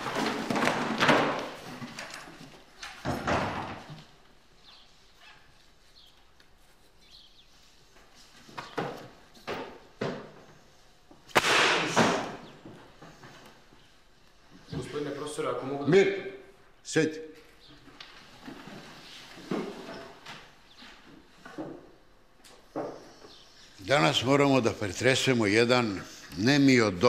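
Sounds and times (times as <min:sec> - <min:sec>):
wooden desks and benches knocking: 0:00.0 - 0:04.2.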